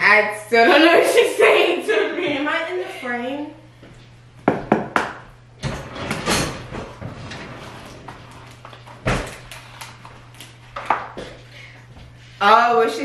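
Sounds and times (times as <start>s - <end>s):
knock on kitchen counter: 4.4s - 5.2s.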